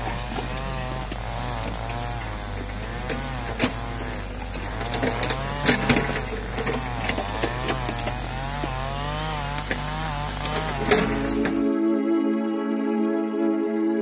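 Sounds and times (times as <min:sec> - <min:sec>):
brushcutter engine revving: 0:00.0 - 0:11.7.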